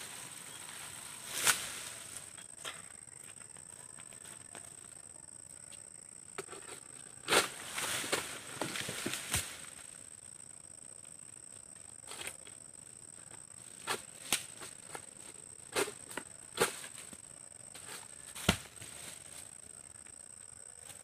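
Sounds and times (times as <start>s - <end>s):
high-pitched insect drone: 0.0s - 21.0s
sharp cracks and rustles: 7.3s - 9.9s.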